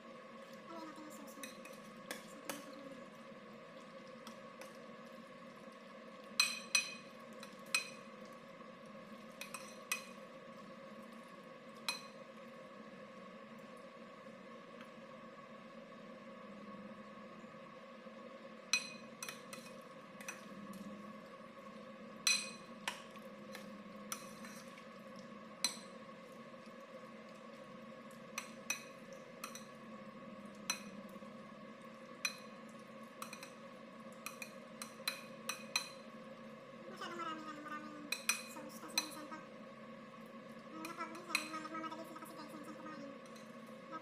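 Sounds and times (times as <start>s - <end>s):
spoon clinking against bowl: 6.4s - 8.0s, 22.2s - 22.7s, 38.1s - 39.2s
metal spoon stirring in bowl: 6.4s - 8.1s, 9.3s - 10.2s, 22.2s - 24.8s, 28.4s - 29.8s, 33.2s - 33.6s, 34.2s - 36.1s, 38.1s - 39.4s, 40.8s - 41.7s.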